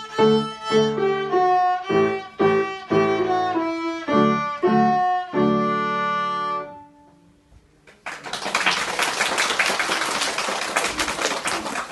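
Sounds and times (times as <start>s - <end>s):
violin and piano chord: 0.0s - 7.2s
audience applause: 7.9s - 11.9s.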